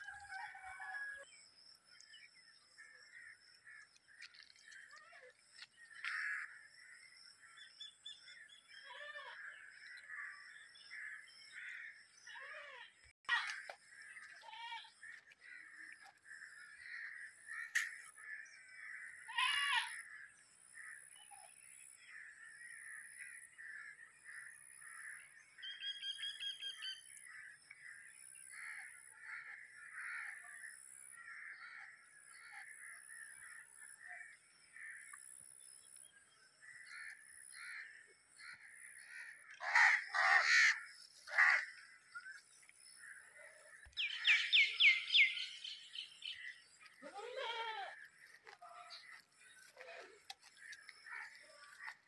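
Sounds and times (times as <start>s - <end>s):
background bird chatter: 0.0s - 52.0s
crows cawing: 6.0s - 6.6s, 28.6s - 30.5s, 36.9s - 41.8s.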